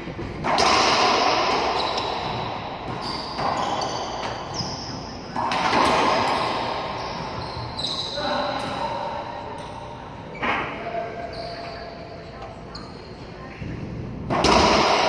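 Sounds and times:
ball smacking court walls: 0.2 - 4.6, 5.3 - 7.4
sneakers squeaking on floor: 1.2 - 13.7.

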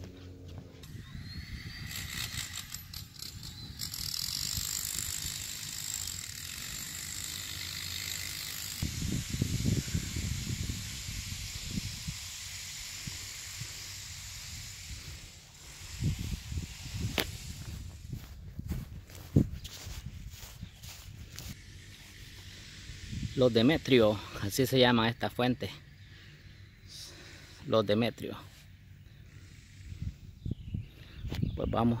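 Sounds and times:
wind gusting on microphone: 0.8 - 5.8, 8.8 - 21.6, 22.8 - 23.4, 29.8 - 32.0
steady hiss: 7.6 - 18.1.

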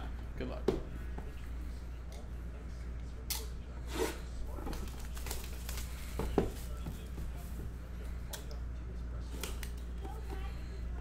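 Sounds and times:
plastic wrap crinkling and tearing: 4.7 - 6.8.

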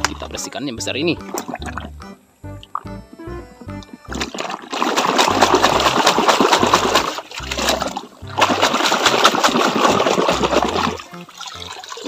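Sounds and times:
muddy water splashing and sloshing: 1.0 - 2.0, 3.8 - 12.0.

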